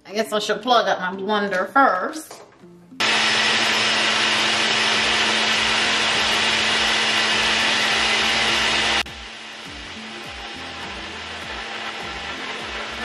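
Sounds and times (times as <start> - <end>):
blender whirring: 3.0 - 13.0.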